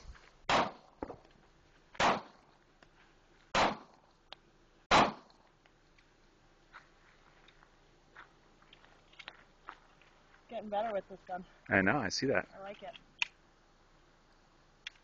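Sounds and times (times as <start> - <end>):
pistol shots: 0.5 - 0.9, 2.0 - 2.4, 3.5 - 4.0, 4.9 - 5.3.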